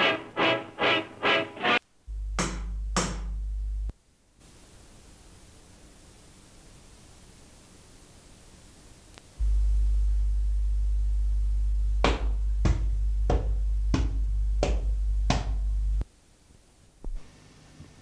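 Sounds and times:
deep steady drone: 2.0 - 3.9, 9.4 - 16.0.

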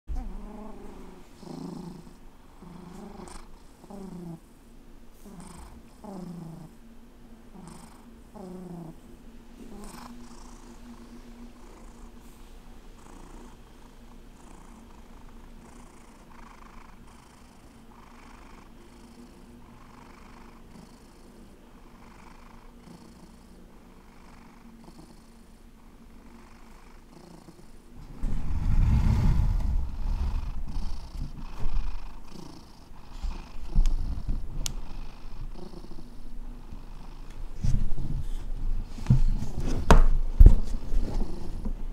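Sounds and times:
cat purring: 0.1 - 4.5, 5.2 - 6.8, 7.5 - 9.0, 9.6 - 38.4, 41.0 - 41.7
loud low rumbling: 27.9 - 32.3.

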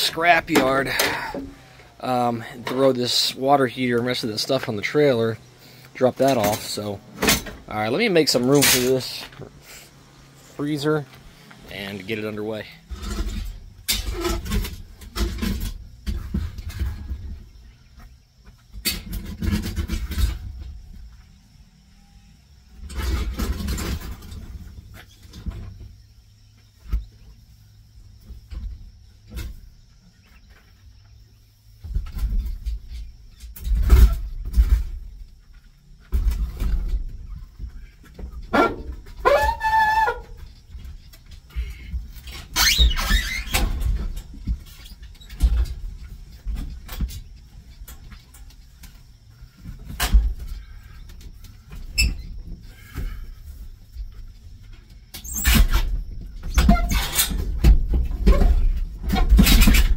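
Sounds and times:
refrigerator scraping: 0.0 - 11.0, 11.7 - 17.2, 36.2 - 48.3, 55.2 - 59.9
metal scraping and squealing: 38.5 - 44.0
loud metal screech: 38.6 - 40.3, 42.3 - 43.7.

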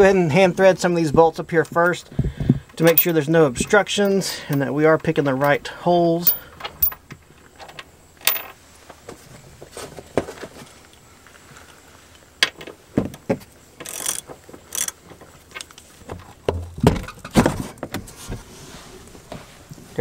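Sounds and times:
knocks of tools and metal: 2.4 - 5.6, 6.2 - 8.6.

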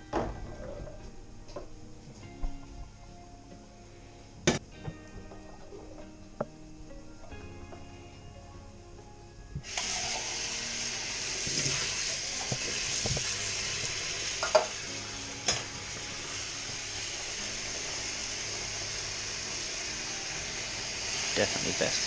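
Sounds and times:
tap water pouring into sink: 9.6 - 10.4, 11.0 - 14.8.

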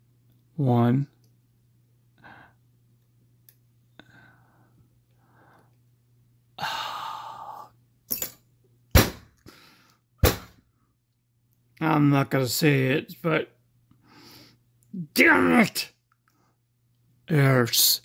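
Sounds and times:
faint low hum: 0.0 - 18.0
soft breaths: 3.9 - 5.9, 13.9 - 14.7
man sighing: 6.6 - 7.7.

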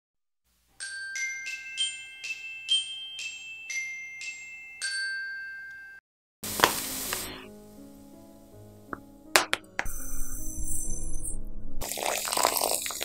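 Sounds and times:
glockenspiel melody: 0.8 - 6.0, 9.8 - 11.8.

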